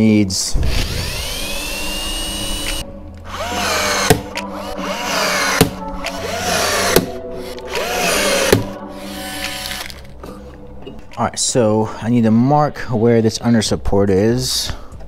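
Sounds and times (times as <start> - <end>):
power drill whining: 0.6 - 10.0.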